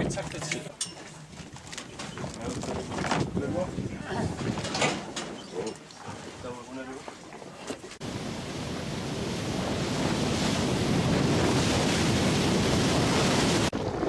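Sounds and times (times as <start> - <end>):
wind on microphone: 1.3 - 6.4, 8.0 - 14.0
sea rushing: 3.5 - 14.0.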